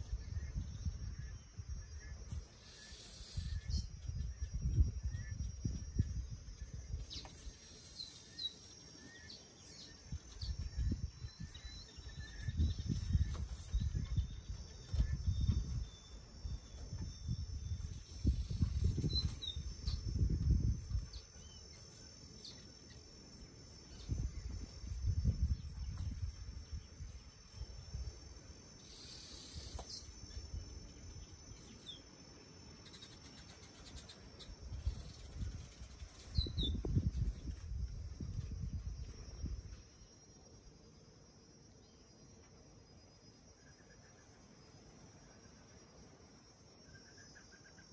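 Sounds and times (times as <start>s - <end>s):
high insect buzz: 0.0s - 47.9s
low rumbling on microphone: 34.6s - 39.8s.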